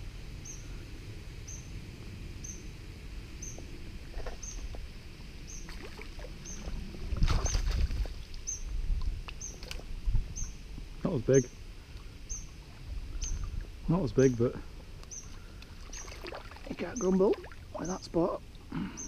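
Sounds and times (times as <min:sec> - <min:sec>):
steady low rumble: 0:00.0 - 0:19.0
fish splashing in water: 0:05.7 - 0:08.3, 0:15.3 - 0:17.9.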